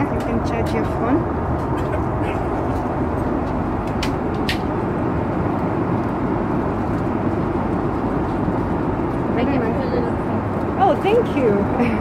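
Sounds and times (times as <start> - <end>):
airliner cabin rushing noise: 0.0 - 9.6.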